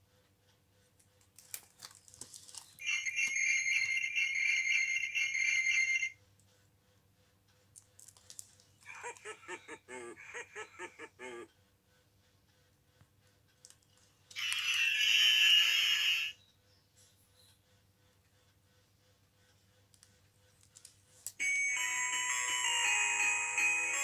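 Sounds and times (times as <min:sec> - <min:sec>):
book pages rustling: 0:01.2 - 0:03.8
tinny electronic santa laugh: 0:02.8 - 0:06.1, 0:08.8 - 0:11.7, 0:14.4 - 0:16.4.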